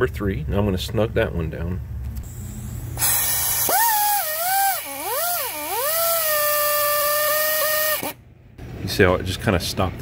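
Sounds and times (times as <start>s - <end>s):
air hissing: 2.2s - 8.2s
pneumatic ratchet motor whining: 3.0s - 8.2s.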